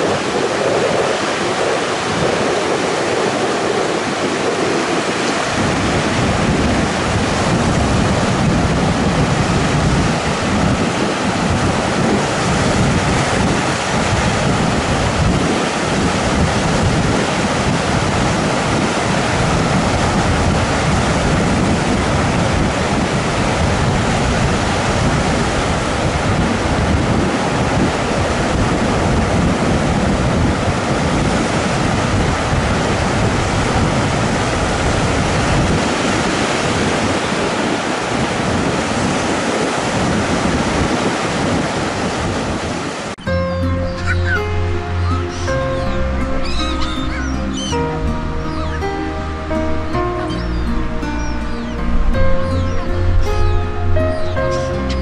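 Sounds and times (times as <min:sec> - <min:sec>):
gusty low rumble: 0:00.0 - 0:36.0, 0:39.7 - 0:55.0
wind buffeting microphone: 0:00.0 - 0:55.0.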